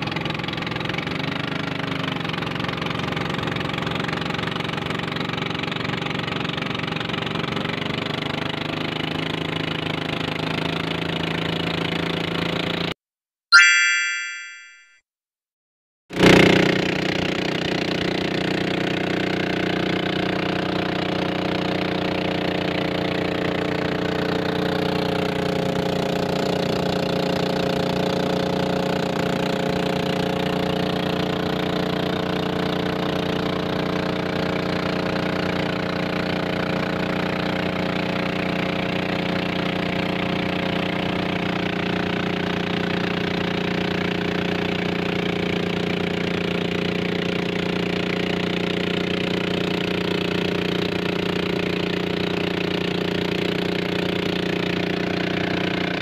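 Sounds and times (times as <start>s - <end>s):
motorboat engine running: 0.0s - 12.9s, 16.2s - 56.0s.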